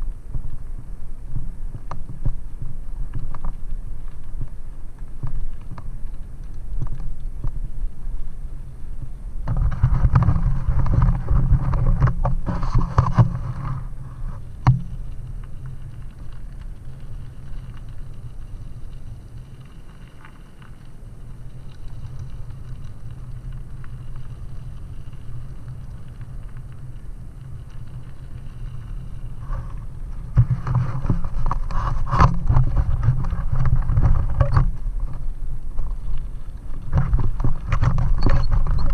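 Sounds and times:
wind rumbling on microphone: 0.0 - 38.9
bike rattling over stones: 1.4 - 38.9.

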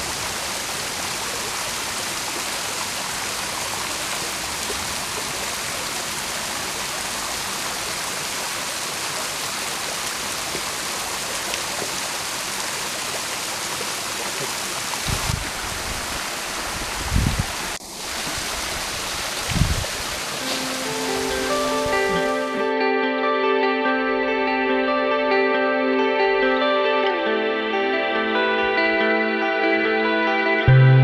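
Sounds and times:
water splashing down rocks: 0.0 - 22.4
stream running over stones: 0.0 - 22.6.

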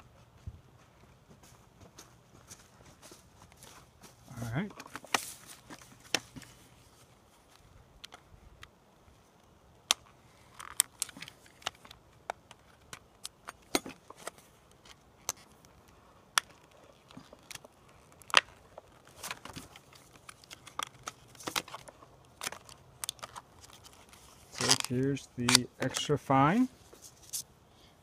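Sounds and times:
plastic packaging clicking and crackling: 9.8 - 26.1.

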